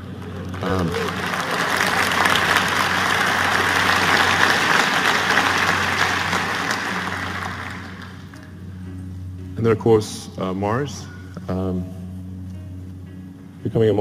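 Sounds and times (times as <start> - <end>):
large audience applauding: 0.0 - 8.5.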